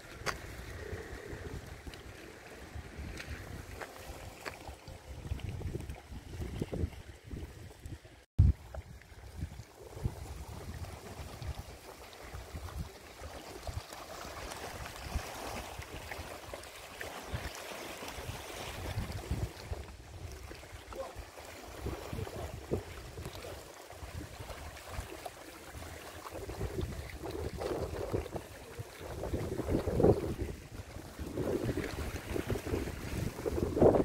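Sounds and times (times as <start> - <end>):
small sea waves: 0.0 - 34.0
wind buffeting microphone: 5.1 - 12.9, 26.3 - 34.0.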